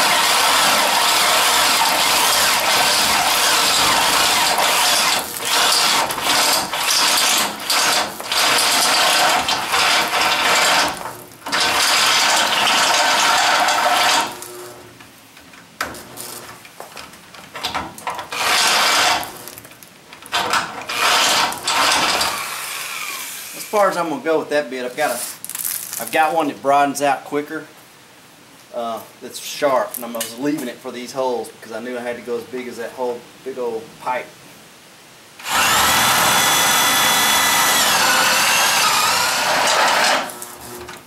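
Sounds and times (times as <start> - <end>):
hand drill drilling through steel: 0.0 - 14.7, 18.2 - 19.6, 20.2 - 23.9, 35.4 - 41.0.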